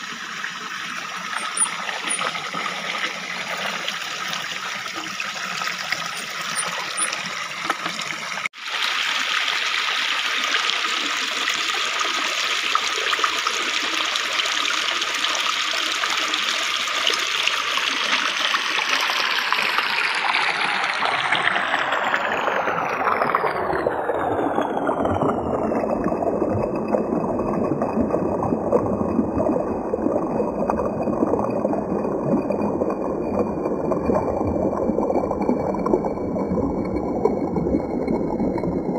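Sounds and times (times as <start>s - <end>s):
stream splashing over rocks: 0.0s - 30.0s.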